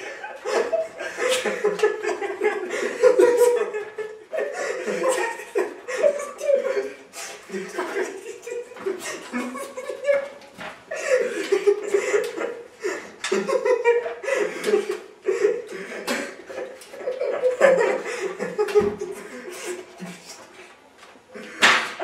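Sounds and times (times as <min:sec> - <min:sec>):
men laughing: 0:00.0 - 0:20.6.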